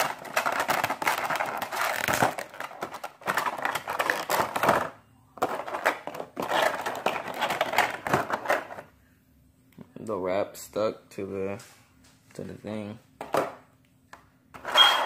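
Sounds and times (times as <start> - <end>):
plastic wrap crinkling: 0.0 - 4.8.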